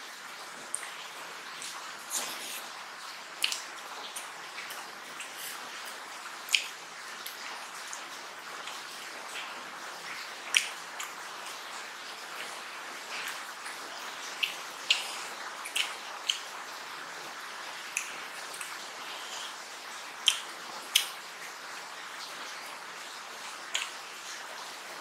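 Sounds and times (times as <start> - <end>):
steady hiss: 0.0 - 25.0
wet chewing and clicks: 3.4 - 8.0, 8.6 - 11.7, 12.4 - 16.6, 17.9 - 19.6, 20.2 - 21.2, 23.7 - 24.0.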